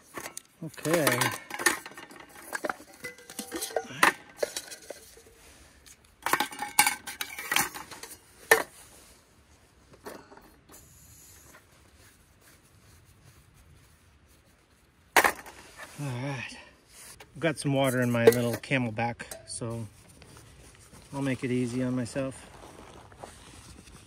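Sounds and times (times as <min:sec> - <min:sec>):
metal cookware clanking: 0:00.2 - 0:05.4.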